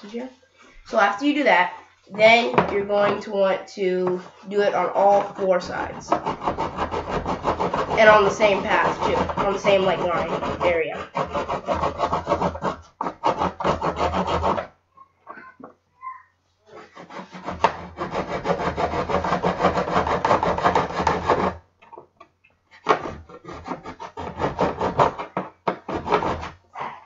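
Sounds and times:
serrated knife sawing wood: 4.0 - 14.7, 16.7 - 21.6, 22.8 - 26.6.

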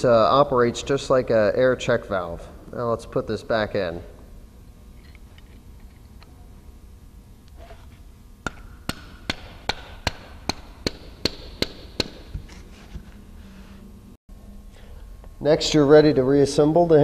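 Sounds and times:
mallet striking metal: 8.4 - 12.4.

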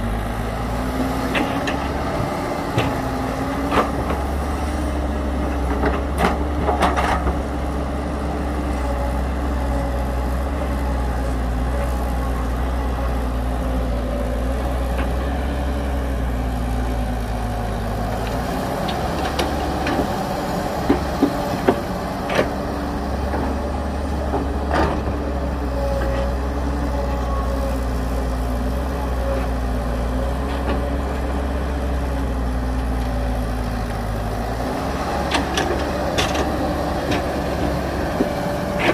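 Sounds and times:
heavy diesel engine rumbling: 0.0 - 38.9.

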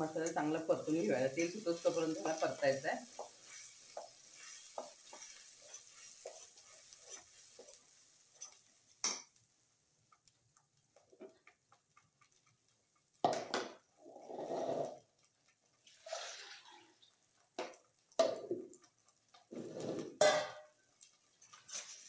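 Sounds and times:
paste sizzling in oil: 0.0 - 22.0
spatula scraping pan: 0.2 - 9.2, 19.3 - 22.0.

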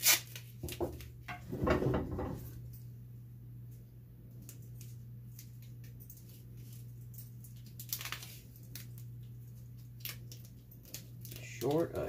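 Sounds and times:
tape ripping off roll: 0.0 - 0.9
tape rustling and clicking: 0.0 - 1.4, 3.7 - 12.0.

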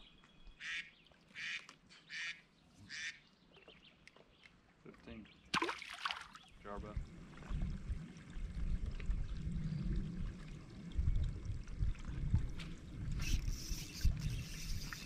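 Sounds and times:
water lapping against boat hull: 5.6 - 15.0
wind on microphone: 6.7 - 15.0.

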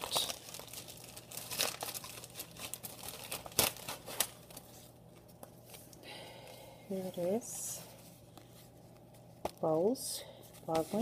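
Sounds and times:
plastic bags crinkling: 0.0 - 5.5.

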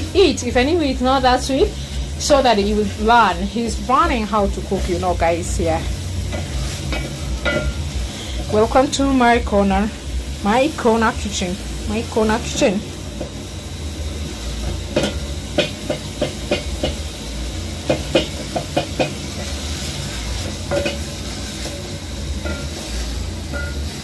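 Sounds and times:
steady hiss: 0.0 - 24.0
wooden spoon scraping metal pot: 4.6 - 8.8.

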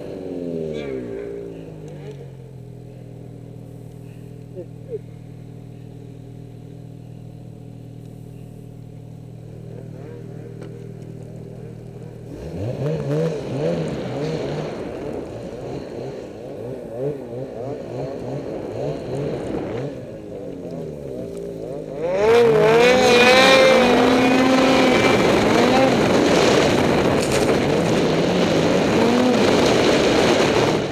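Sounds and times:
snowmobile engine revving: 9.4 - 30.9.

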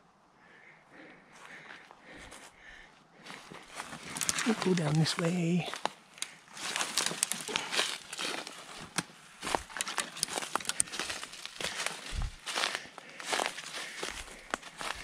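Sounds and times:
footsteps through dry brush: 1.4 - 15.0
leaves and twigs crunching: 3.2 - 15.0
branches brushing past: 3.8 - 5.8.

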